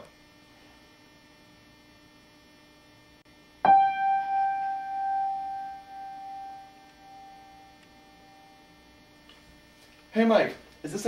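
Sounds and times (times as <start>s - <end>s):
faint steady hum: 0.0s - 11.0s
high piano note ringing: 3.6s - 8.7s.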